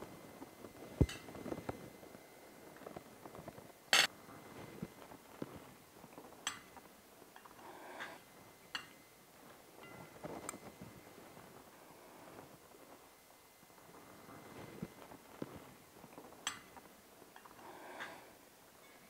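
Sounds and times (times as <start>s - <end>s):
cutlery clinking on plates: 1.0s - 1.4s, 6.4s - 6.8s, 8.0s - 9.0s, 16.4s - 16.8s.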